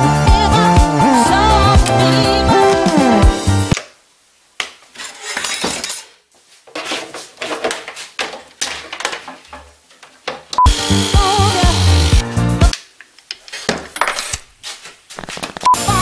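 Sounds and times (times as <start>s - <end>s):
music: 0.0s - 3.8s, 10.7s - 12.8s, 15.7s - 16.0s.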